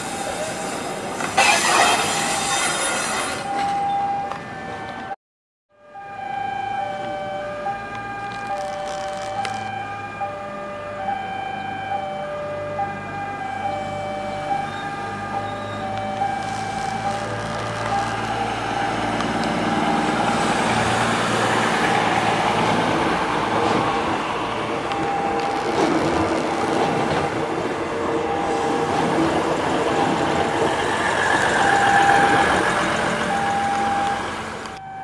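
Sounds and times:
train wheels rumbling on rails: 0:14.7 - 0:34.8.

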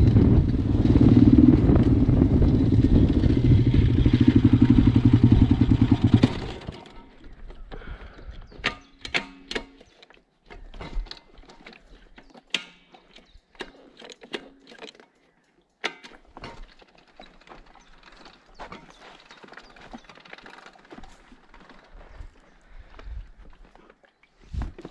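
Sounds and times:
motorbike engine revving: 0:00.0 - 0:07.1
bike clicks clunks and rattles: 0:04.4 - 0:22.2.

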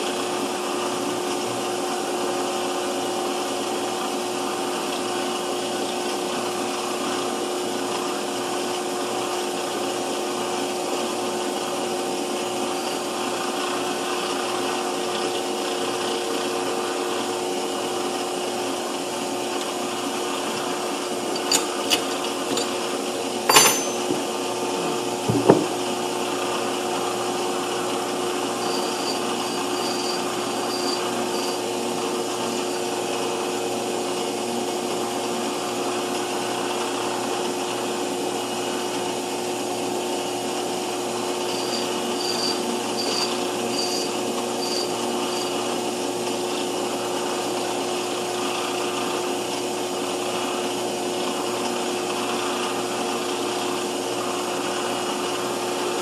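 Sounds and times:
metal lathe humming: 0:12.1 - 0:37.3.

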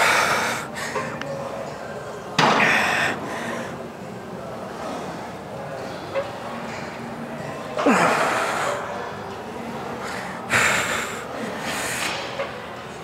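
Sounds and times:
man breathing hard with exertion: 0:00.0 - 0:01.2, 0:02.6 - 0:03.8, 0:10.0 - 0:12.1.

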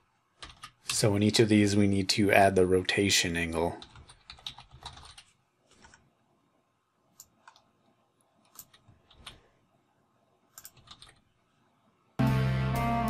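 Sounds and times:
computer keys and mouse clicking: 0:00.4 - 0:01.1, 0:03.8 - 0:06.1, 0:07.2 - 0:07.8, 0:08.4 - 0:09.4, 0:10.5 - 0:11.3.

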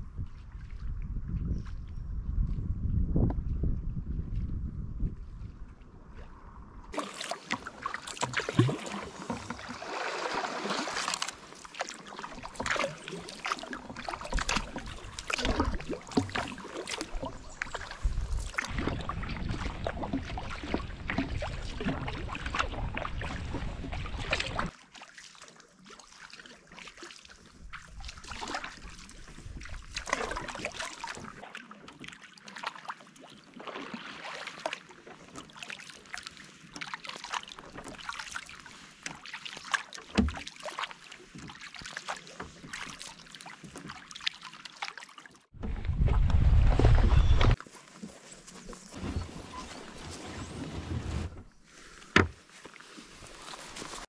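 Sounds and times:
wind rumble on microphone: 0:00.0 - 0:07.0, 0:17.2 - 0:24.7, 0:45.6 - 0:47.6
paddle splashing in water: 0:06.9 - 0:54.0.

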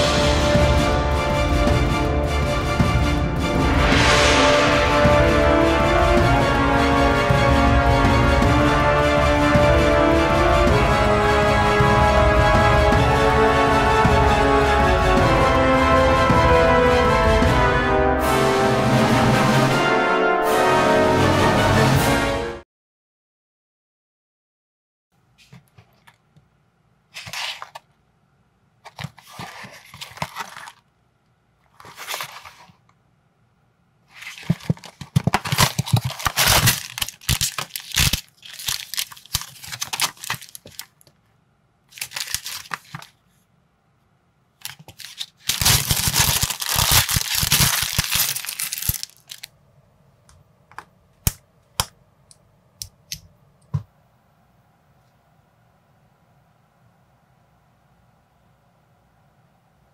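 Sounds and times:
paper rustling: 0:25.4 - 0:26.2, 0:27.1 - 0:27.9, 0:28.8 - 0:30.9, 0:31.6 - 0:32.9, 0:34.1 - 0:41.1, 0:41.9 - 0:43.4, 0:44.6 - 0:49.5
cardboard box opening: 0:27.2 - 0:27.8, 0:28.9 - 0:30.8, 0:31.7 - 0:32.8, 0:34.1 - 0:40.9, 0:42.0 - 0:43.2, 0:44.6 - 0:49.5
plastic bag tearing and crinkling: 0:34.1 - 0:41.0, 0:41.9 - 0:43.2, 0:44.6 - 0:49.5
plastic pieces clicking together: 0:44.6 - 0:49.5.

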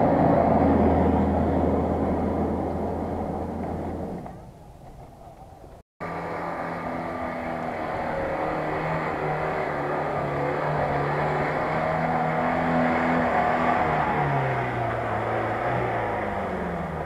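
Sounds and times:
off-road vehicle engine working hard: 0:00.0 - 0:17.0.

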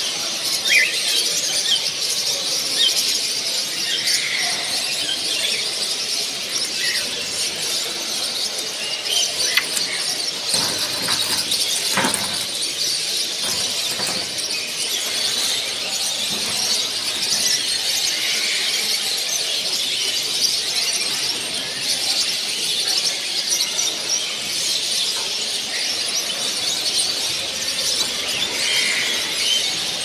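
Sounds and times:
chorus of birds chirping: 0:00.0 - 0:30.0.

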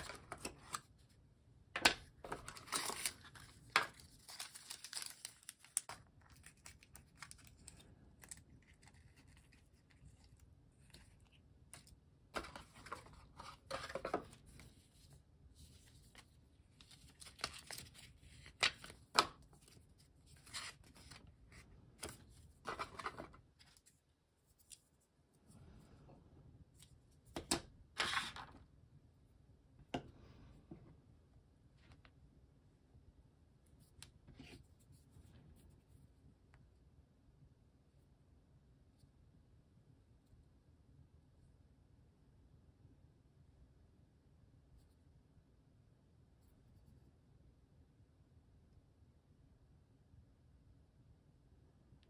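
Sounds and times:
packaging rustling: 0:02.2 - 0:07.8.

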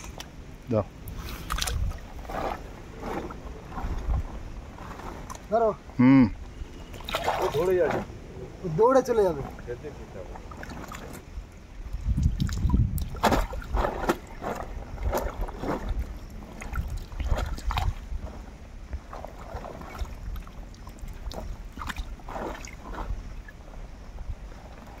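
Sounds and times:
fish splashing in water: 0:06.8 - 0:07.8, 0:19.0 - 0:23.6.

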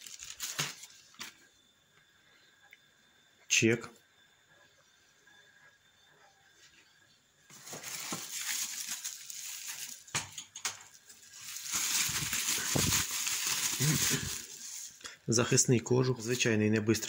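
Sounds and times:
bubble wrap crinkling: 0:00.0 - 0:01.4, 0:07.5 - 0:15.0
sharp bubble wrap crackles: 0:00.0 - 0:01.4, 0:07.5 - 0:15.0.

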